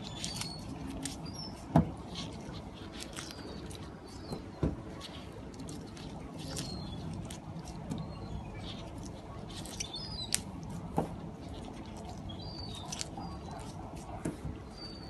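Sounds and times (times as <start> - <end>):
clicks and scratches of handling fish: 0.0 - 15.0.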